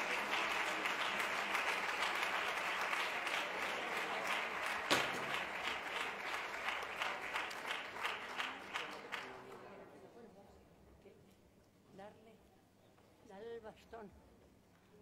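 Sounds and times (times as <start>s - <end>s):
audience applauding: 0.0s - 9.7s.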